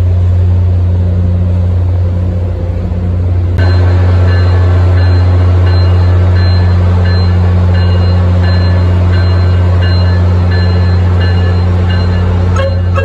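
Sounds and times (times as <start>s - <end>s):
locomotive engine drone: 0.0s - 13.0s
locomotive bell ringing: 3.6s - 13.0s.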